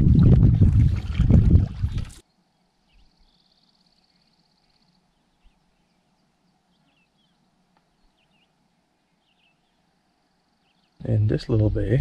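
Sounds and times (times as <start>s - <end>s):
faint high bird chirps: 2.2s - 11.1s.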